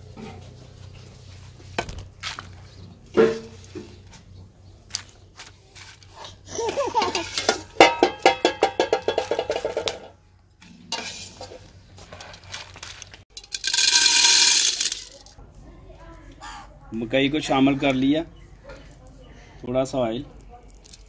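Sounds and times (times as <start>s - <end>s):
popcorn rustling clatter: 5.0s - 15.4s
wire skimmer scraping metal pot: 5.9s - 15.2s.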